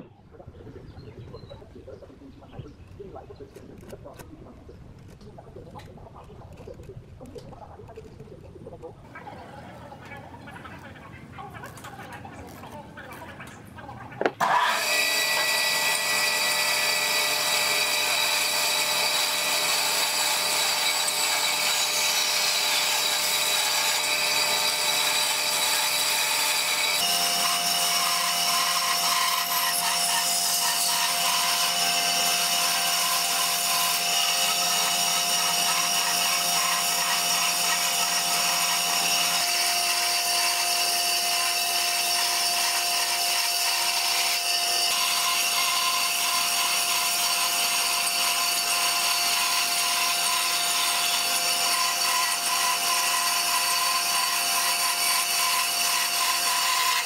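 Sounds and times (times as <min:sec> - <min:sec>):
band saw motor whine: 0:14.3 - 0:57.0
saw blade rasping through wood: 0:14.3 - 0:57.0.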